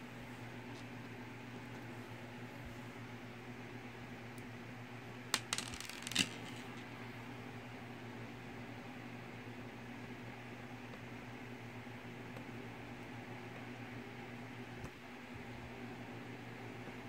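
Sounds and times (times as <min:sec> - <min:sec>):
plastic bricks clicking together: 0:05.4 - 0:06.6.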